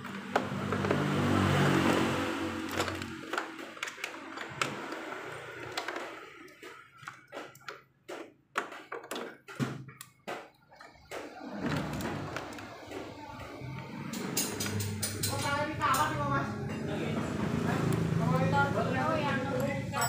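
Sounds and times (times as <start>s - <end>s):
sharp clicks and knocks: 0.0s - 16.1s.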